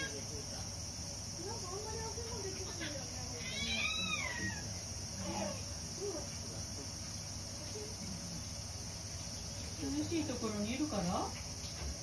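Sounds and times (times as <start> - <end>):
cat meowing: 3.4 - 4.7.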